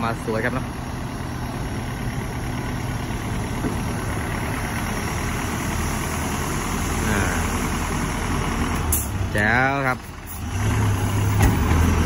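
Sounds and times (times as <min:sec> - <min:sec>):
diesel truck engine running: 0:00.0 - 0:12.0.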